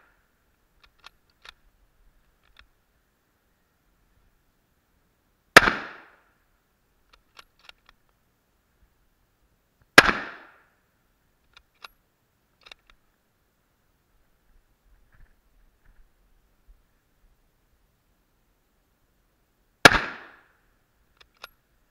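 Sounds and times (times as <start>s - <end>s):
rifle shots with echo: 5.6s - 6.2s, 10.0s - 10.6s, 19.8s - 20.5s
rifle bolt clicking: 21.2s - 21.6s.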